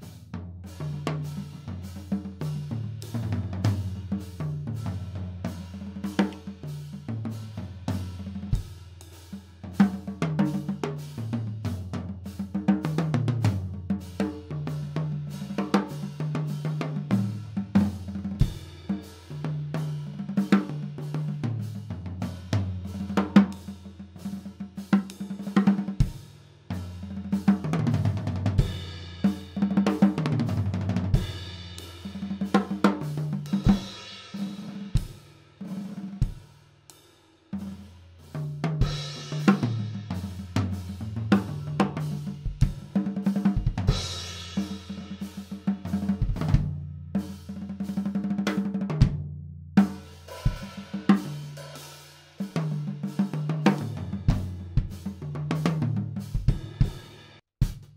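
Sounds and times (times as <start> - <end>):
snare drum: 0.0 - 8.7, 26.8 - 36.5, 38.4 - 49.0, 49.8 - 51.8, 52.4 - 57.9
bass drum: 0.0 - 35.2, 37.6 - 51.4, 52.4 - 57.9.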